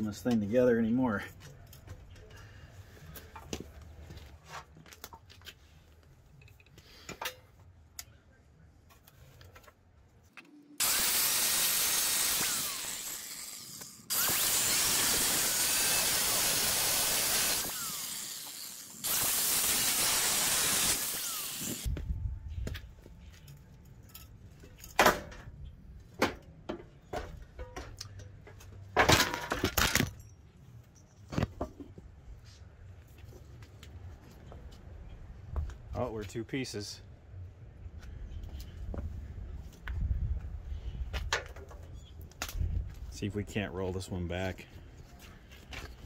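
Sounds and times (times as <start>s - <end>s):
angle grinder cutting steel: 10.8s - 21.9s.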